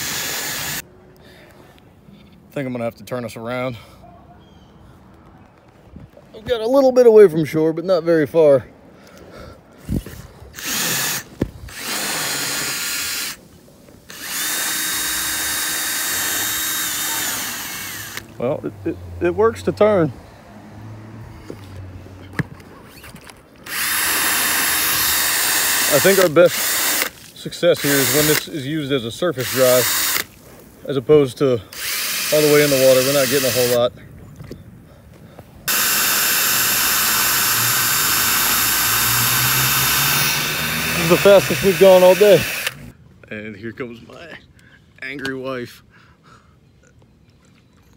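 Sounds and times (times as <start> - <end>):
cordless drill whining: 0.0 - 0.8, 10.0 - 13.4, 14.1 - 18.4, 23.6 - 27.2, 27.8 - 28.5, 29.4 - 30.4, 31.7 - 33.9, 35.7 - 42.9.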